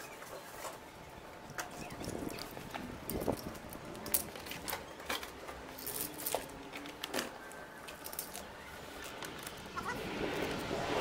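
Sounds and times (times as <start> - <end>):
objects clicking and rattling: 1.5 - 9.6.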